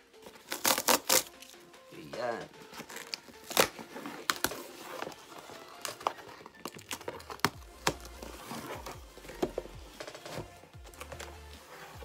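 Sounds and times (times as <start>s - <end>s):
cardboard box tearing: 0.4s - 1.4s, 2.8s - 9.7s.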